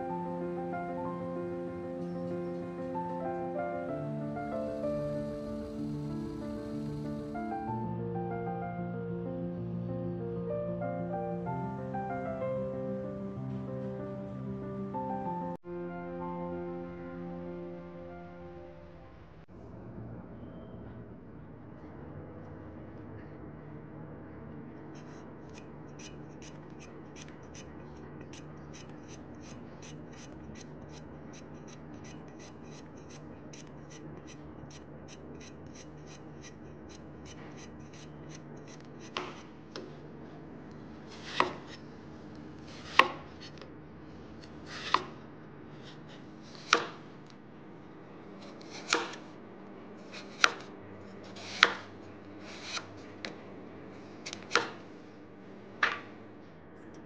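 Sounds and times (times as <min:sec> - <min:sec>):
steady low hum: 0:00.0 - 0:25.9, 0:39.4 - 0:57.0
knife chopping on cutting board: 0:39.0 - 0:40.0, 0:41.1 - 0:41.8, 0:42.6 - 0:43.5, 0:44.7 - 0:45.2, 0:46.5 - 0:47.0, 0:48.4 - 0:49.3, 0:50.1 - 0:50.7, 0:51.3 - 0:52.9, 0:54.3 - 0:54.8.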